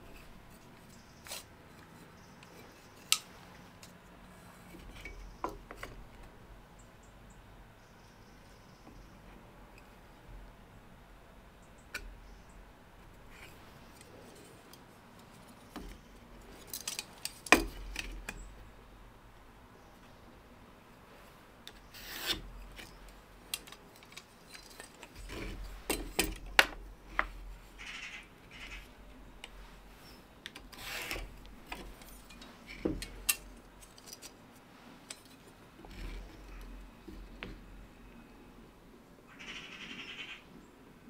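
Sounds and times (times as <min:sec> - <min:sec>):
metal square clicks and knocks: 0:14.7 - 0:18.5, 0:21.7 - 0:27.4.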